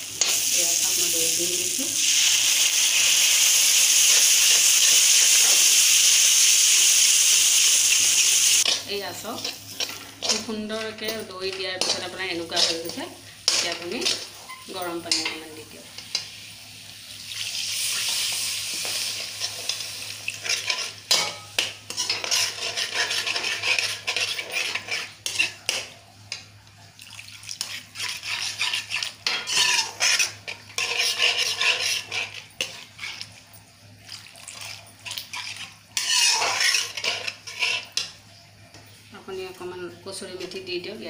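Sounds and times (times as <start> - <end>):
hot water hissing in pan: 0.0 - 10.5, 12.5 - 26.0, 35.2 - 38.4
metal spoon scraping pan: 8.6 - 16.3, 18.0 - 25.9, 27.6 - 33.4, 34.6 - 38.2.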